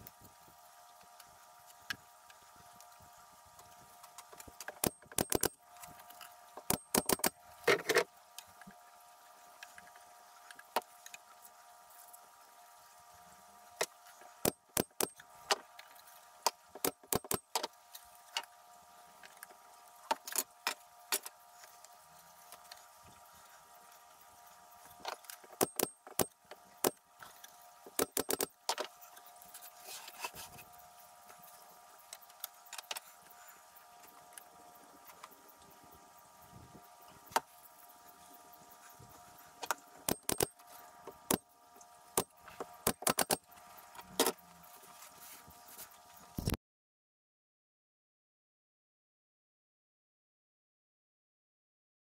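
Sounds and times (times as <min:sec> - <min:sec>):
faint hum: 0:00.0 - 0:46.6.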